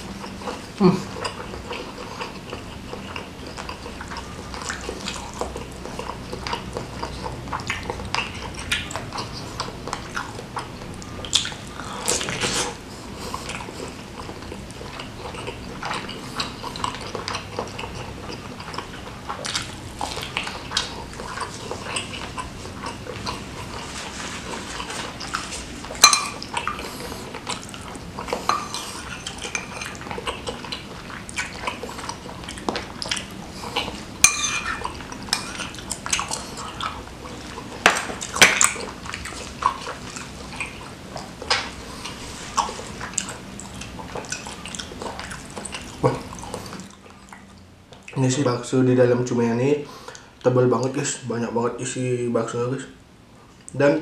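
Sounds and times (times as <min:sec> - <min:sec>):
wet chewing and smacking: 0:00.0 - 0:48.4
spoon clinking against bowls: 0:26.0 - 0:26.4, 0:28.5 - 0:30.0, 0:34.2 - 0:35.6.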